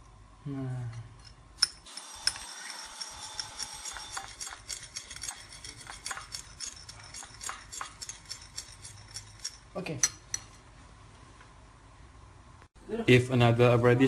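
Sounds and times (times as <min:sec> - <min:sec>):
metal spoon clinking in bowl: 0:01.2 - 0:10.6.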